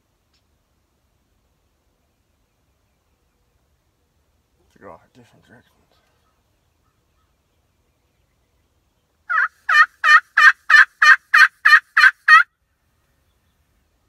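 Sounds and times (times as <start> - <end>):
turkey call yelps: 9.3 - 12.5.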